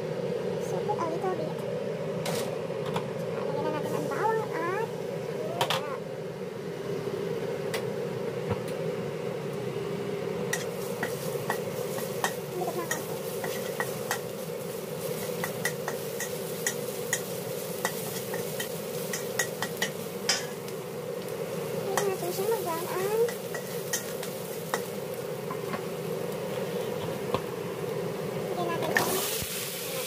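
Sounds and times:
oil sizzling: 2.2 - 30.0
spatula scraping a wok: 10.5 - 20.6, 22.9 - 25.7.

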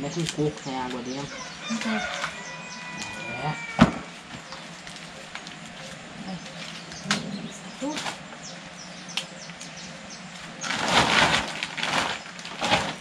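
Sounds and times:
corn husks tearing and rustling: 10.4 - 13.0.

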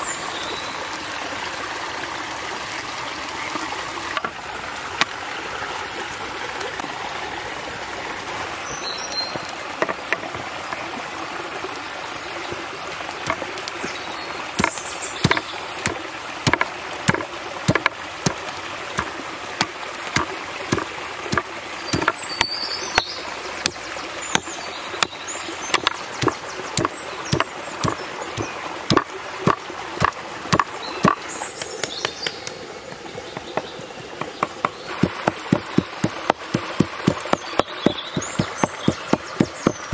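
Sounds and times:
knife striking wooden board: 14.6 - 18.4, 19.0 - 22.2, 25.7 - 31.2, 34.2 - 39.9.

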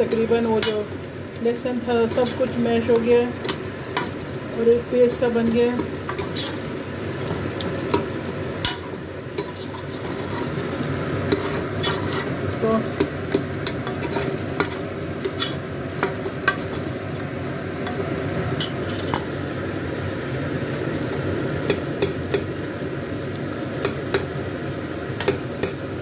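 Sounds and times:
gravy bubbling: 5.8 - 13.6.

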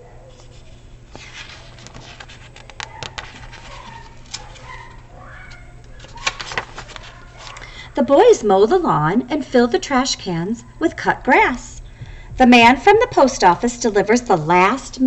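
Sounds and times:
book pages rustling and crackling: 0.3 - 7.6.

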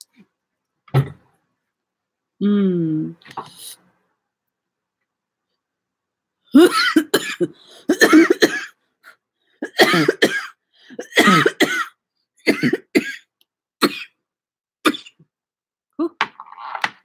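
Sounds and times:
woman coughing: 6.6 - 8.8, 9.6 - 13.2.

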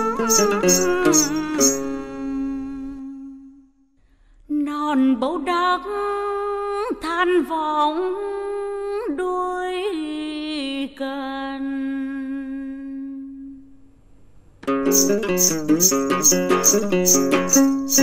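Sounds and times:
woman singing folk song: 0.0 - 3.4, 4.5 - 13.5.

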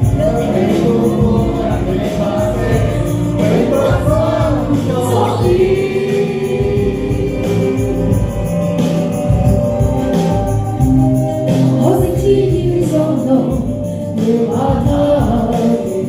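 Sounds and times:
woman singing into microphone: 0.0 - 8.5, 11.5 - 16.0
men singing along: 0.0 - 8.8
music: 0.0 - 16.0.

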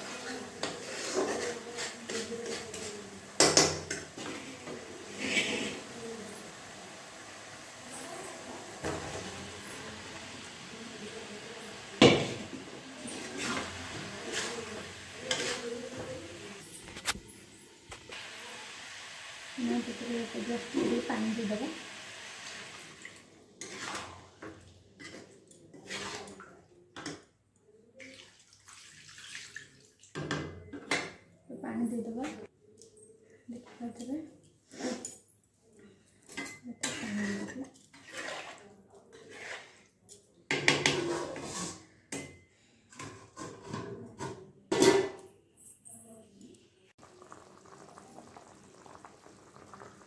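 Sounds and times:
metal spatula stirring pan: 0.0 - 17.1, 23.6 - 26.4, 36.5 - 39.8
water splashing and sizzling in pan: 0.0 - 17.2, 18.0 - 24.7, 46.9 - 50.0
curry bubbling: 47.0 - 50.0.

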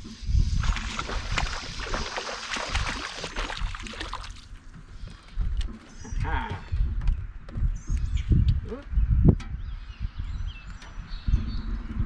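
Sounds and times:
water lapping against boat: 0.0 - 6.2.

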